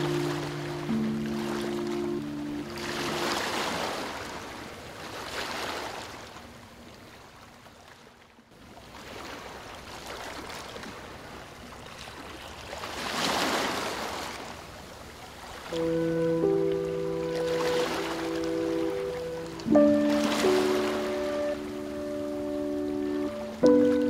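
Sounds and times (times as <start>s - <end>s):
ocean waves breaking: 0.0s - 8.1s, 8.7s - 24.0s.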